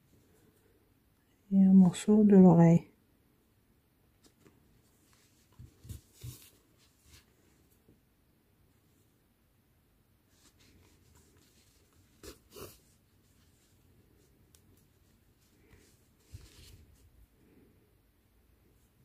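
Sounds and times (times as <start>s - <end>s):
scratchy rubs: 10.3s - 17.1s
yarn pulled through fabric: 10.3s - 17.6s.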